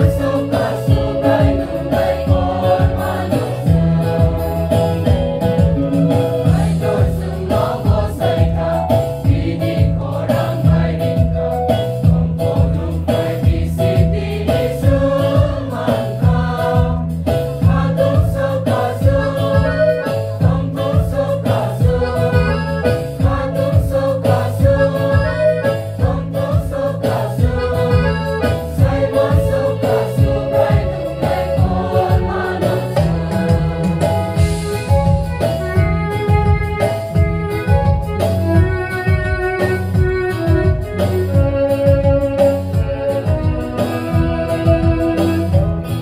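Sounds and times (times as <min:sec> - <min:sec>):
choir singing: 0:00.0 - 0:04.9, 0:06.4 - 0:34.4
steady beat: 0:00.0 - 0:46.0.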